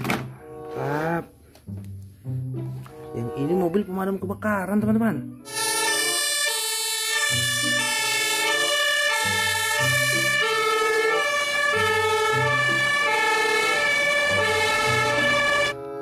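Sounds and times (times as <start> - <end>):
two-tone fire engine sirens: 5.5 - 15.8.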